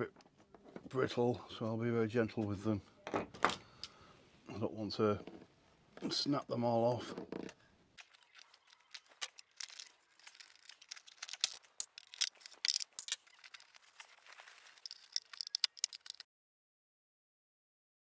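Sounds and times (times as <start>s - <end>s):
screwdriver scraping metal: 8.0s - 16.2s.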